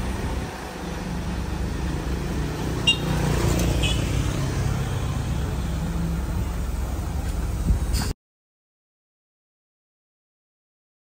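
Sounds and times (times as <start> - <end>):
motor scooter passing: 0.0 - 6.3
diesel truck engine pulling away: 0.0 - 8.2.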